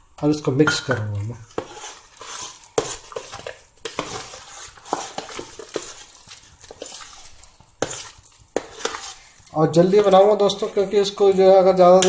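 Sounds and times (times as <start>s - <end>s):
batter stirred in metal bowl: 0.8s - 12.0s.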